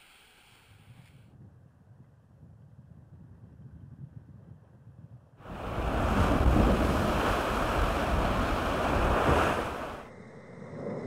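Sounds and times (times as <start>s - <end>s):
wind buffeting microphone: 0.9s - 10.2s
rushing water: 5.4s - 10.1s.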